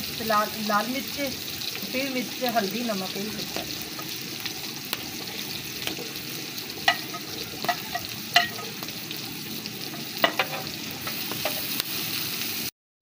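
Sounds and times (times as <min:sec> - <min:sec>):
onions and tomatoes sizzling: 0:00.0 - 0:12.7
metal spatula clinking: 0:06.9 - 0:08.8, 0:09.9 - 0:10.7.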